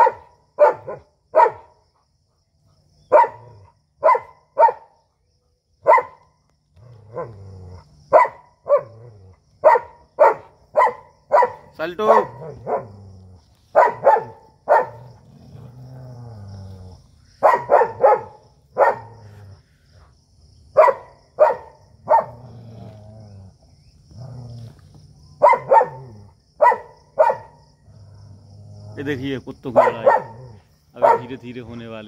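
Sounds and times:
dog barking sharply: 0.0s - 1.6s, 4.0s - 4.8s, 5.8s - 6.2s, 9.6s - 12.8s, 13.8s - 15.0s, 17.4s - 19.2s, 25.4s - 26.0s, 26.6s - 27.5s, 29.8s - 30.4s, 31.0s - 31.4s
dog growling: 6.8s - 8.1s, 8.8s - 9.5s, 12.1s - 13.6s, 14.7s - 17.2s, 22.1s - 25.0s, 27.8s - 29.2s, 29.8s - 31.8s.

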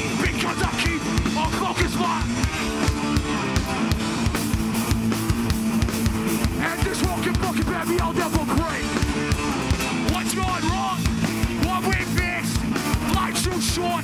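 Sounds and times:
singer shouting: 0.0s - 2.4s, 6.6s - 9.0s, 10.0s - 14.0s
punk band playing: 0.0s - 14.0s.

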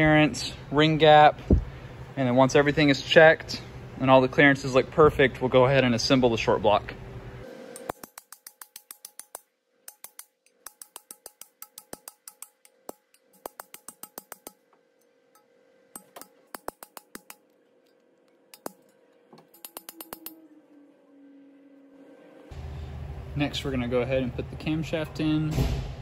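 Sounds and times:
hammer tapping metal bar: 7.8s - 14.6s, 15.4s - 17.4s, 18.5s - 18.8s, 19.4s - 20.4s.

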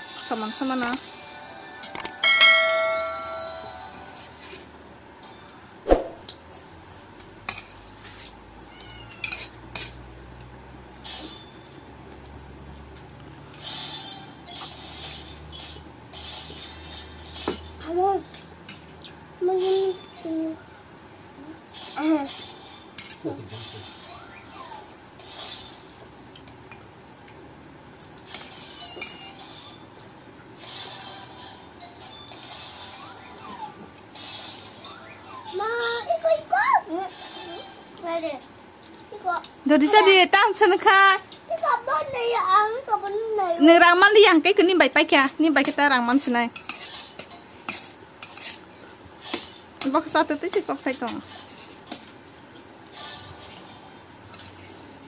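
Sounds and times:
fork clinking and scraping on plate: 9.1s - 10.0s, 46.6s - 48.6s.

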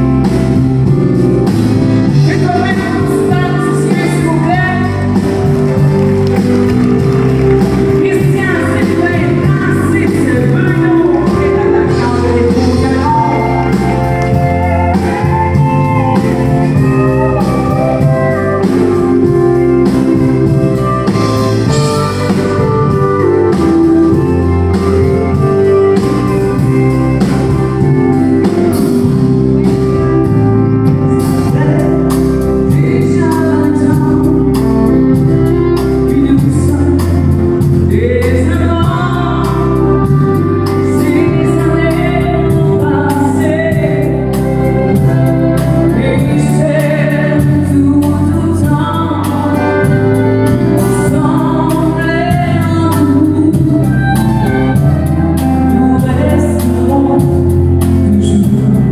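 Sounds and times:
drums: 0.0s - 58.9s
person singing: 2.0s - 58.9s.

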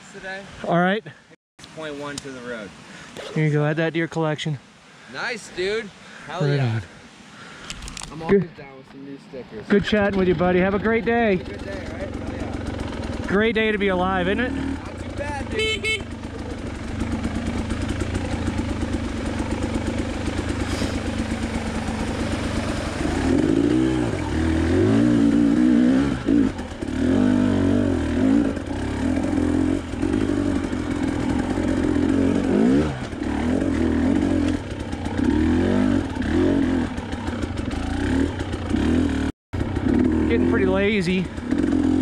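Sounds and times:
dirt bike engine revving: 9.7s - 42.0s.

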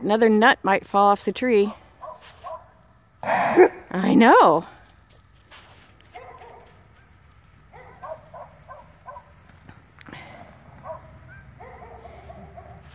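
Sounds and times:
short pitched animal calls: 3.2s - 3.8s
horse hooves on frozen ground: 4.5s - 12.9s.

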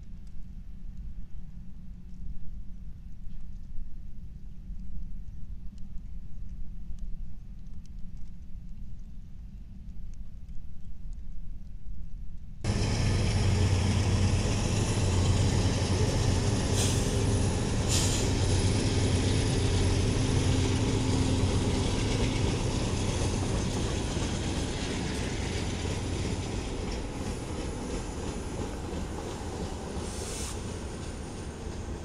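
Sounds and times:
diesel locomotive engine rumble: 12.7s - 32.0s
wheels on rail: 12.7s - 32.0s.

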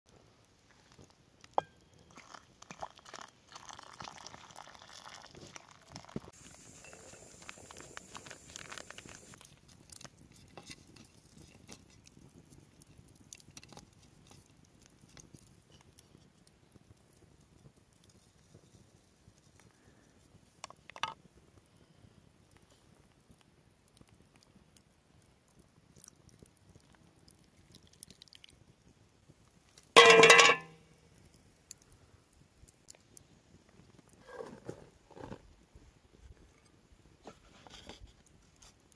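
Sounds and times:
flour sifting hiss: 6.3s - 9.4s
metal bowl clanking on stone: 30.0s - 30.8s.

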